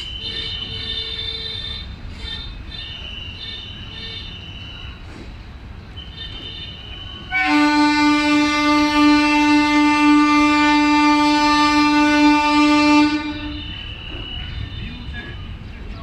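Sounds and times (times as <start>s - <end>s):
train horn blast: 0.0s - 4.5s, 6.0s - 14.2s
train coaches rumbling past: 0.0s - 16.0s.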